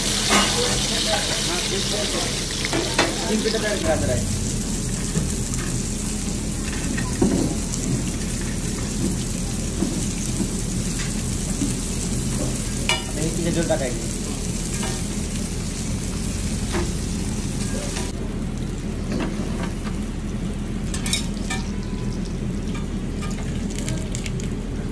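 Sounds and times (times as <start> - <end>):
fish sizzling on a griddle: 0.0 - 24.6
low hum: 3.8 - 8.3.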